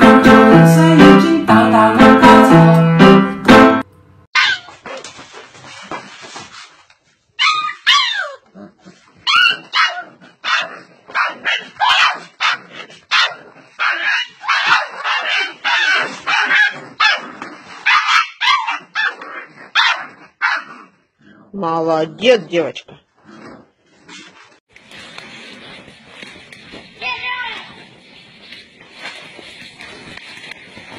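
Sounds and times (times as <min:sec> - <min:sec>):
dog yipping and whimpering: 0:04.4 - 0:05.0, 0:07.4 - 0:08.5, 0:09.2 - 0:17.2, 0:17.9 - 0:20.7.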